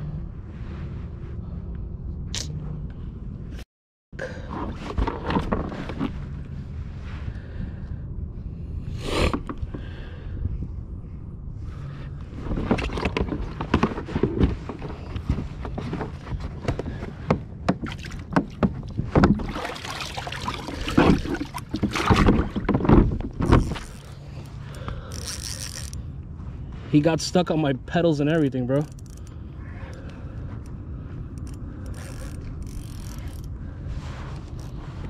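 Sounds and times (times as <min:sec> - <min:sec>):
water splashing: 0:19.2 - 0:22.8.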